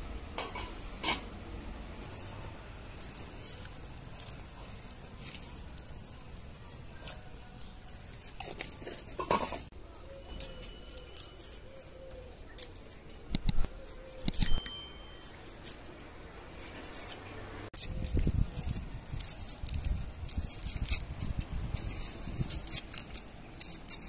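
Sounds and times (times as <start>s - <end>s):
onion skin crackling: 2.8s - 9.2s, 15.4s - 24.0s.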